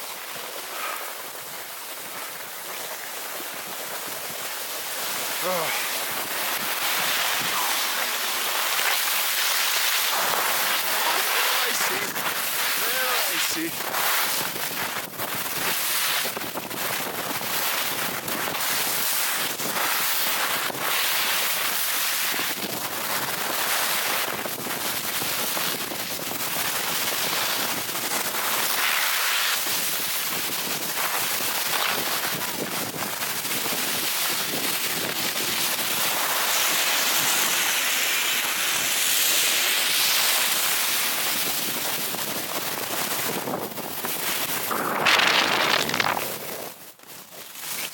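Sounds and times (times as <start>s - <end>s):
skis scraping over icy snow: 0.0s - 47.9s
wind rushing over microphone: 5.2s - 20.9s, 41.2s - 46.9s.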